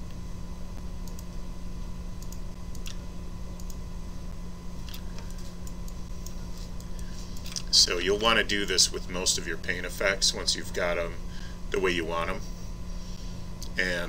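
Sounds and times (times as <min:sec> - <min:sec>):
steady low hum: 0:00.0 - 0:14.0
computer mouse clicks: 0:01.0 - 0:01.3, 0:02.2 - 0:03.0, 0:04.8 - 0:07.7
keyboard clicks: 0:01.0 - 0:01.3.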